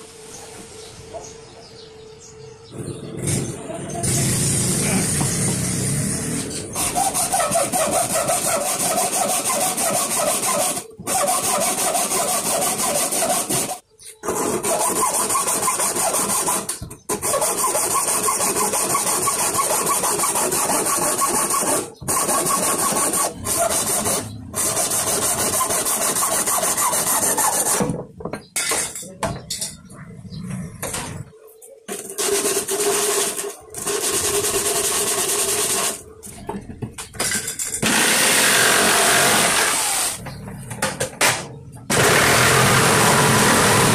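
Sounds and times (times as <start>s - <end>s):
hacksaw rasping through plastic: 6.6s - 28.0s.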